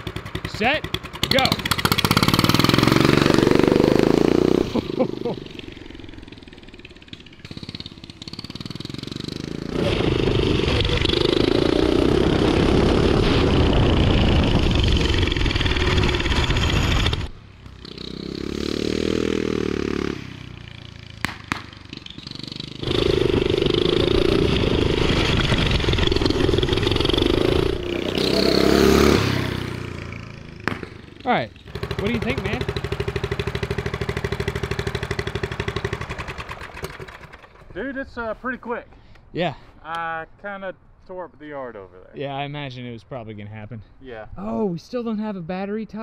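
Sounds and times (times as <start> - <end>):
engine running at full throttle: 0.0 - 6.2, 21.2 - 29.7, 31.7 - 37.4.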